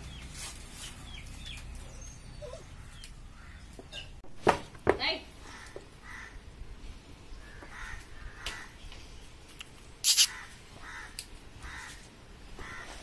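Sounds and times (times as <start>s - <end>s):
crows cawing: 5.4s - 6.5s, 7.4s - 8.8s, 10.2s - 13.0s.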